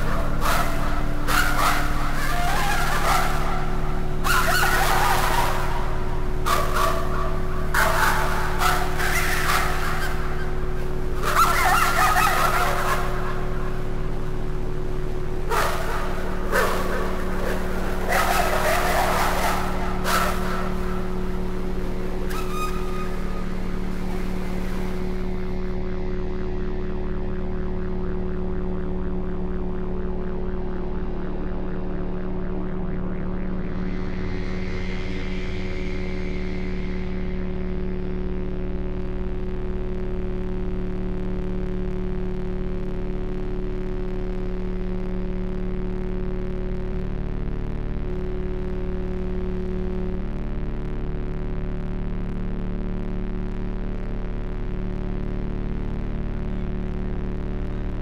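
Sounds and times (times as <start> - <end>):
low hum: 0.0 - 39.6
low steady drone: 0.0 - 58.0.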